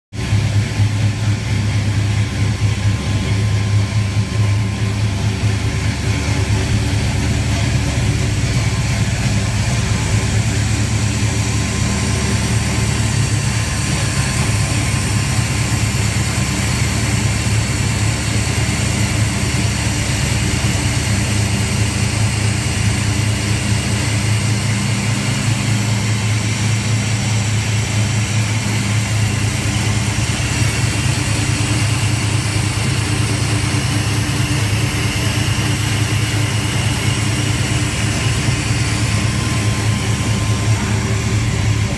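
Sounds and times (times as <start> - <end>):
truck engine idling: 0.2 - 41.9.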